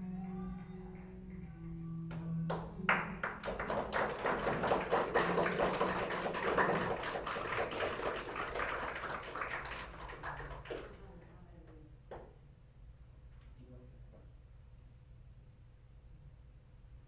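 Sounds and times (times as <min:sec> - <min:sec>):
audience clapping: 0:00.0 - 0:11.2.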